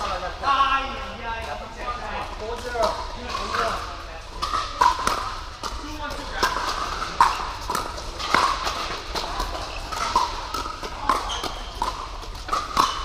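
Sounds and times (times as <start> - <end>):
paddles hitting plastic ball: 2.4 - 13.0.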